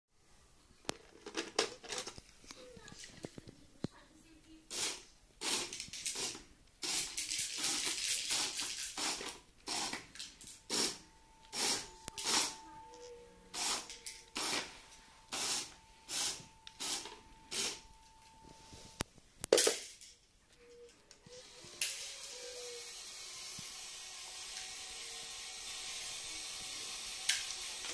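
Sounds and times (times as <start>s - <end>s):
short hissing noises: 4.7s - 10.1s
electric motor whine: 21.3s - 27.9s.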